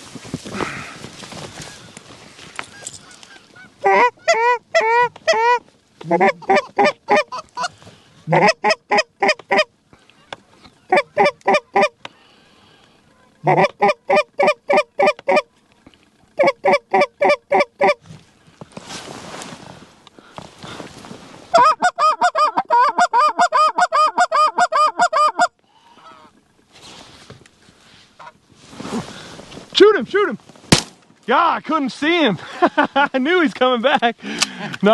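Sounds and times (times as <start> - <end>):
goose call clucks and honks: 2.7 - 12.0, 13.4 - 15.5, 16.4 - 18.0, 21.5 - 26.3.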